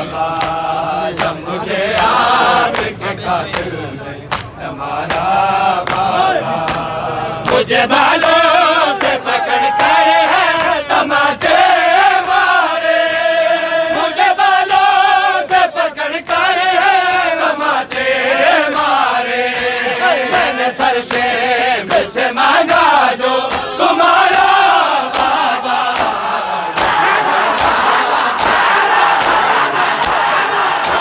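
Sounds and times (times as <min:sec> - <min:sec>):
men chanting a lament: 0:00.0 - 0:31.0
hands slapping bare chests: 0:23.5 - 0:31.0.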